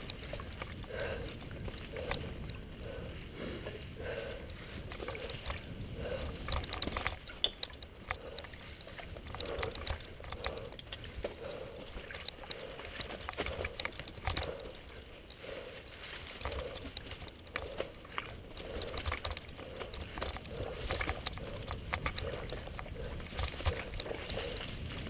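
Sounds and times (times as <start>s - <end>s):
bike rattling over bumps: 0.0s - 2.7s, 3.8s - 25.0s
bike tyres crunching through leaves: 23.2s - 25.0s.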